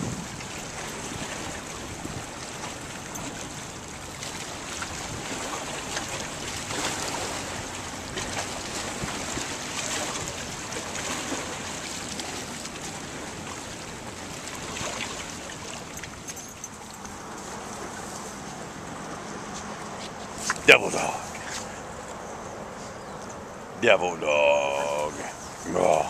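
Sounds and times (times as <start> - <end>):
wind buffeting microphone: 0.0 - 19.9
small waves lapping and splashing: 0.0 - 26.0.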